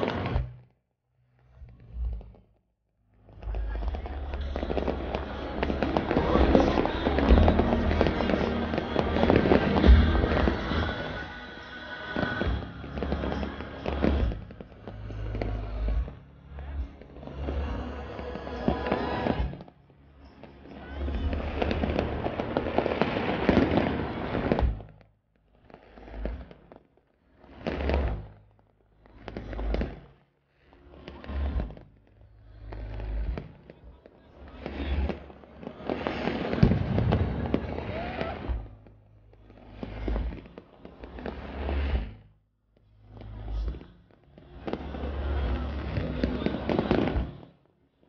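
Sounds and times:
fireworks bangs and crackle: 0.0s - 0.7s, 3.2s - 48.0s
firework booms: 3.4s - 16.2s, 21.1s - 25.0s, 34.4s - 42.1s, 44.6s - 47.4s.

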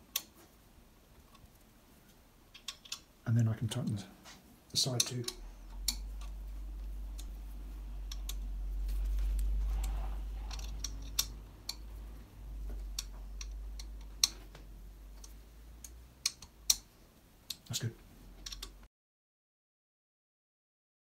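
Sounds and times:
steady low hum: 0.0s - 18.9s
hands rustling on bike frame: 8.7s - 11.0s
hex key clicking on metal screws: 10.5s - 11.8s.

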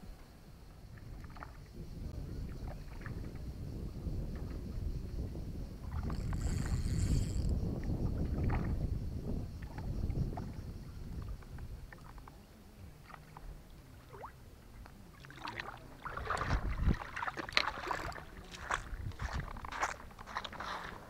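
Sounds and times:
footsteps on sand and dry grass: 18.5s - 21.0s.

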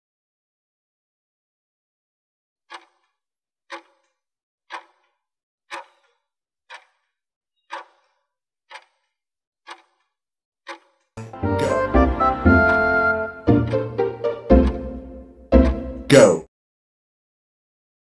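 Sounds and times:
interval timer ticking: 2.7s - 3.1s, 3.7s - 10.1s, 10.7s - 11.7s, 12.4s - 15.9s.

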